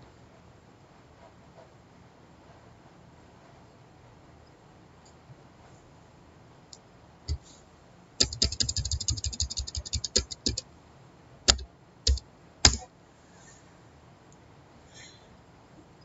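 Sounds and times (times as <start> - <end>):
computer keyboard typing: 8.2 - 10.6, 11.5 - 12.9.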